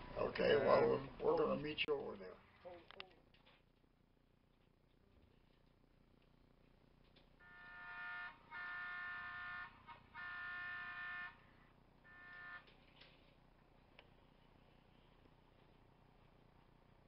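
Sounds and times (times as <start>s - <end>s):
model train horn blasts: 7.4s - 13.2s.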